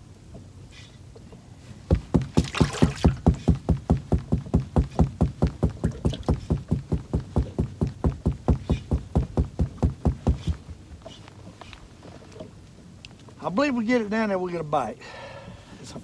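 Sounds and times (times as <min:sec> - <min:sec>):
rapid even knocking: 0:01.9 - 0:10.8.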